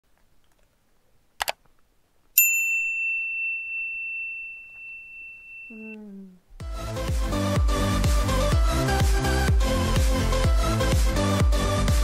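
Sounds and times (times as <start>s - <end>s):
bright bell-like ding: 2.4s - 6.0s.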